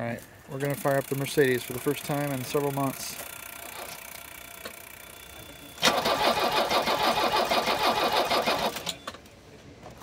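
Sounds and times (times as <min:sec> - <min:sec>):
car engine starting: 0:05.8 - 0:08.9.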